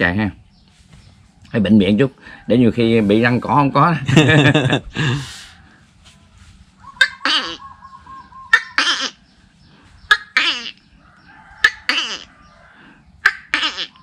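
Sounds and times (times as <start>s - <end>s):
man imitating gecko calls: 7.0s - 9.2s, 10.1s - 10.9s, 11.6s - 12.4s, 13.2s - 14.0s.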